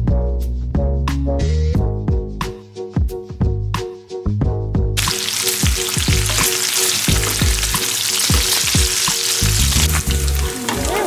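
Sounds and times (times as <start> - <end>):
bass-heavy music beat: 0.0 - 11.0
bacon sizzling in a frying pan: 5.0 - 11.0.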